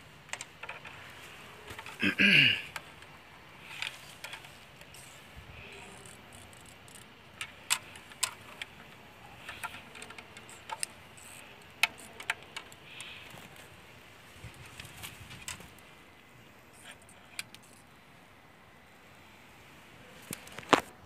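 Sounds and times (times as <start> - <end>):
faint steady hiss: 0.0 - 21.0
small sharp clicks: 5.8 - 13.7.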